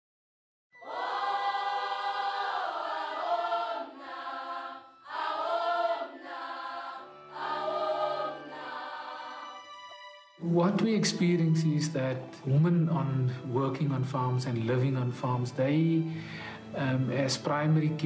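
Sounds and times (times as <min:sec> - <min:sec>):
choir singing: 0:00.8 - 0:12.8.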